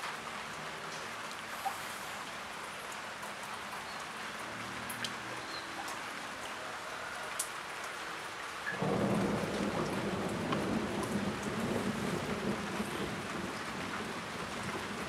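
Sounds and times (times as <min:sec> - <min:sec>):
drips ticking off a roof: 0:00.0 - 0:15.0
steady rain: 0:00.0 - 0:15.0
low rumble of thunder: 0:08.8 - 0:15.0.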